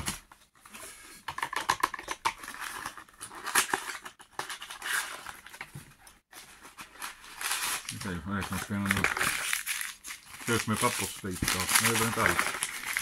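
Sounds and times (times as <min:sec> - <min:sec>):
paper wrapping crinkling and tearing: 0:06.3 - 0:13.0.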